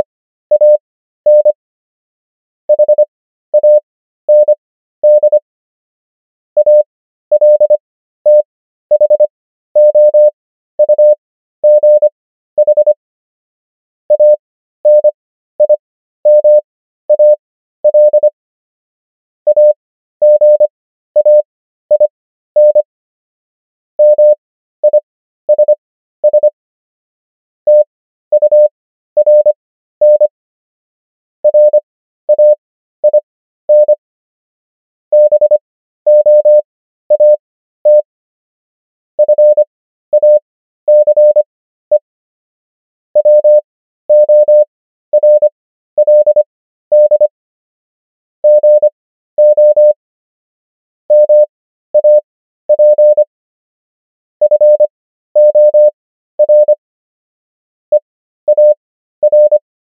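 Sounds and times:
morse code beep tone: 0.0 - 1.6, 2.7 - 3.0, 3.6 - 5.4, 6.6 - 13.0, 14.1 - 18.3, 19.5 - 22.9, 24.0 - 26.5, 27.7 - 30.4, 31.4 - 34.0, 35.1 - 38.1, 39.2 - 42.1, 43.2 - 47.4, 48.4 - 50.0, 51.1 - 53.3, 54.4 - 56.8, 57.9 - 59.6.

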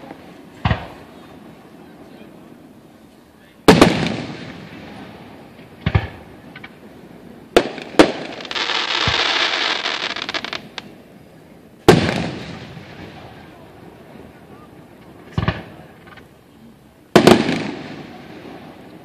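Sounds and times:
sharp firework bangs: 0.0 - 1.1, 3.7 - 6.7, 7.5 - 10.6, 11.9 - 13.4, 15.3 - 15.9, 17.1 - 18.8
firework booms: 0.0 - 2.2, 3.6 - 10.9, 11.8 - 16.2, 17.1 - 19.0
firework crackling: 0.0 - 19.0.

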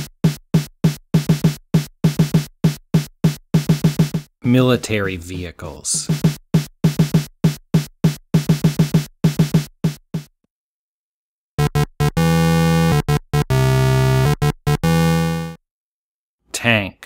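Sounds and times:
drum machine beat: 0.0 - 4.3, 6.0 - 10.3, 11.6 - 15.6
low buzzing synthesizer tone: 11.6 - 15.6.

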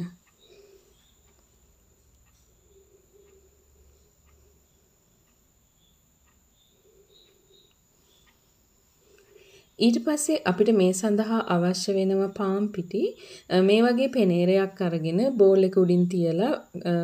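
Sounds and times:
soft ticks: 0.1 - 9.4.

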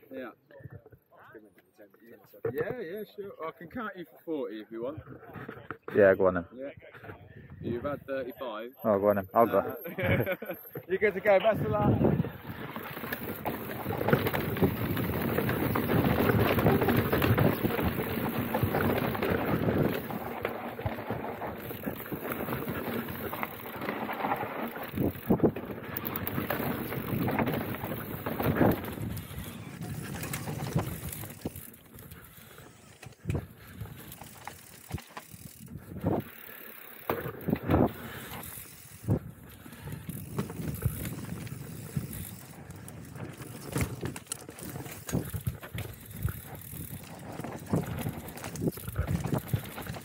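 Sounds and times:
bike tyres crunching over stones: 10.3 - 50.0
bike clattering on rocks: 12.4 - 32.1, 33.0 - 39.1, 40.1 - 50.0.

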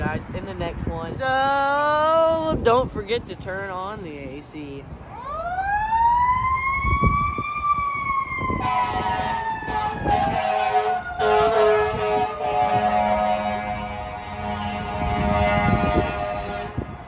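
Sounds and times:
fire truck siren winding: 5.2 - 14.4
horn blasts: 8.6 - 17.0.

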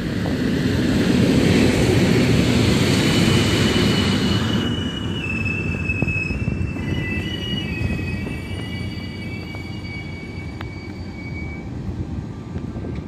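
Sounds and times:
train wheels rumbling on rail: 0.0 - 13.0
brakes squealing: 2.7 - 11.7.

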